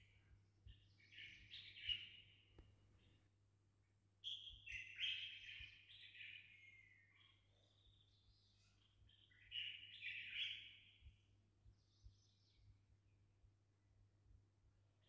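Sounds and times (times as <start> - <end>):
bird chirping and twittering: 0.7 - 3.2, 4.2 - 11.1.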